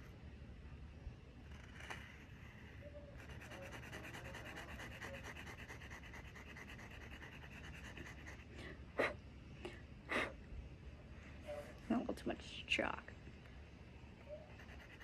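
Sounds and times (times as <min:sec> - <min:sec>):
chalk scratching on pavement: 0:01.6 - 0:08.5, 0:14.5 - 0:15.0.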